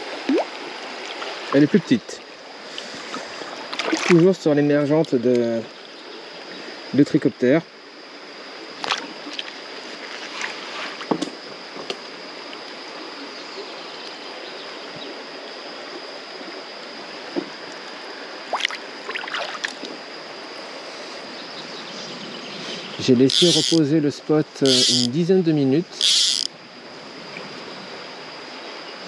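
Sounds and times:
water splashes: 0.0s - 4.5s, 18.4s - 20.0s
river water running over riffles: 23.0s - 23.9s.

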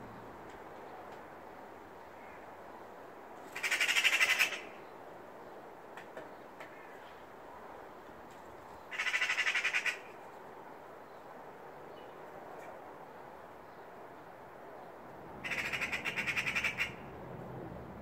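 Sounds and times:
magpie rattling alarm chatter: 3.6s - 4.7s, 8.9s - 10.0s, 15.4s - 17.0s.

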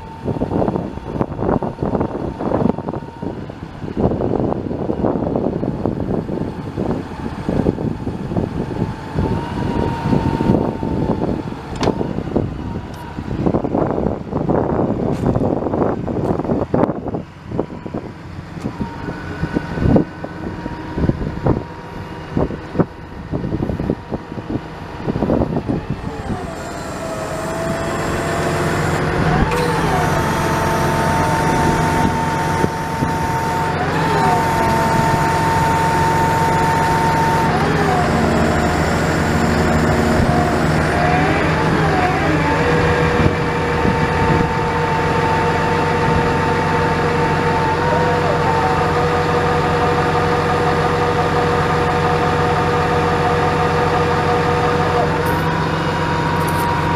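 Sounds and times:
diesel engine idling: 0.0s - 56.9s
whine gliding in pitch: 7.6s - 13.8s, 18.7s - 56.9s.

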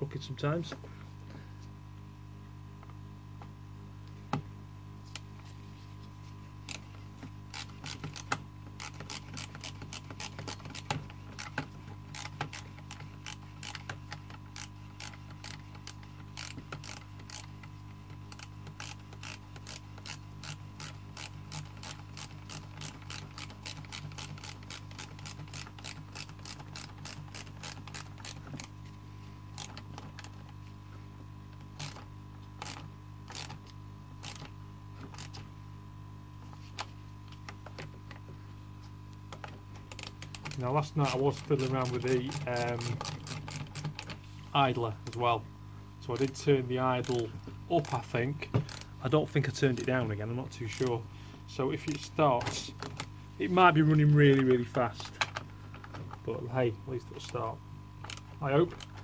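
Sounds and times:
ratchet wrench clicking: 7.5s - 13.9s, 14.6s - 17.5s, 18.3s - 28.7s.

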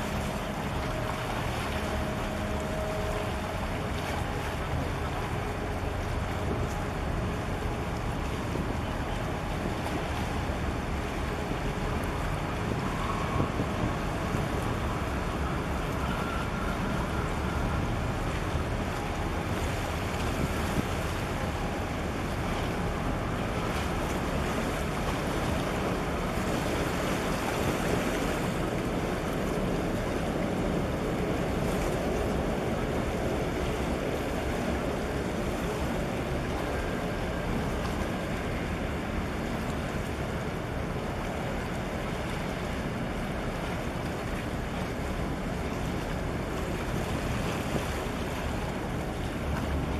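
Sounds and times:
water washing against breakwater: 0.0s - 49.9s
wind on microphone: 6.2s - 41.6s.

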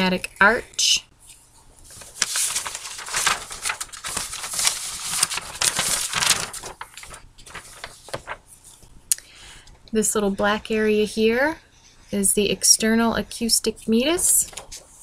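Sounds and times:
paper rustling and crinkling: 1.3s - 8.9s.

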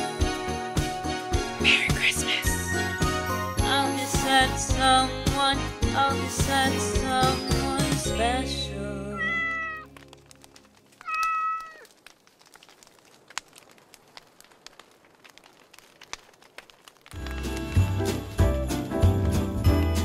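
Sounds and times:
cat meowing: 9.2s - 9.9s, 11.0s - 11.9s
faint clicks: 9.3s - 17.2s.

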